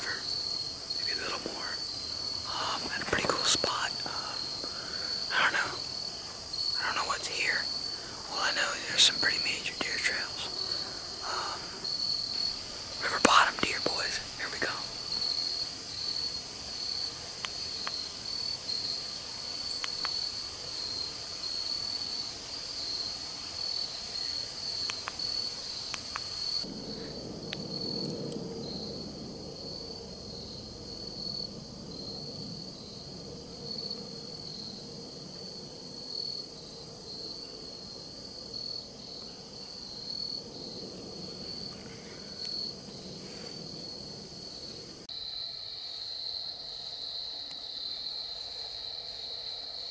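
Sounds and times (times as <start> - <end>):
insects trilling: 0.0 - 49.9
faint clicks: 19.8 - 20.2.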